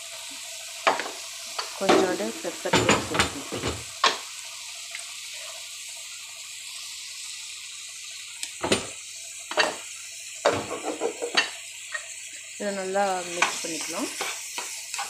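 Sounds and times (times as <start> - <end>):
egg sizzling in a pan: 0.0 - 15.0
wooden spoon scraping a pan: 10.6 - 12.0, 13.3 - 15.0.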